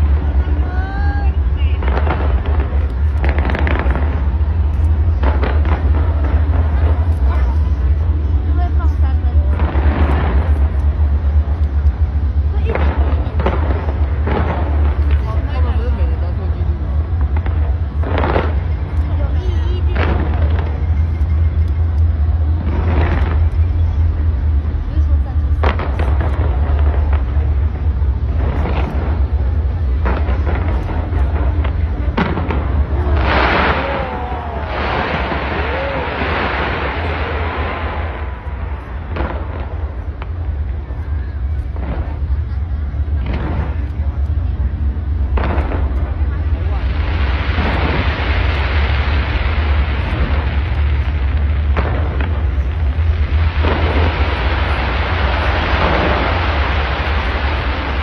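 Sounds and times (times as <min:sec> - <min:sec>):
dense firework crackling: 0:00.0 - 0:58.0
fireworks booming: 0:00.0 - 0:58.0
low rumble: 0:00.0 - 0:58.0
sharp firework bangs: 0:01.6 - 0:08.0, 0:25.5 - 0:44.3, 0:45.2 - 0:58.0.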